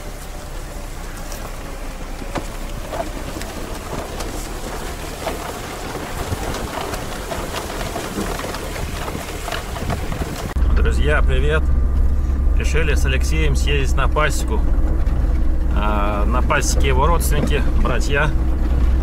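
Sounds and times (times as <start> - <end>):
grass swishing against car: 0.0 - 10.6
low engine rumble: 0.0 - 19.0
wind: 0.0 - 19.0.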